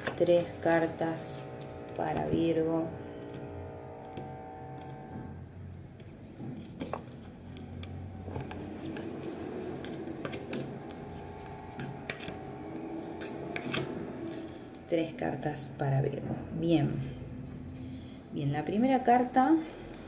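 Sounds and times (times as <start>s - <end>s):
low steady hum: 0.0s - 20.0s
cards being shuffled: 6.5s - 14.0s.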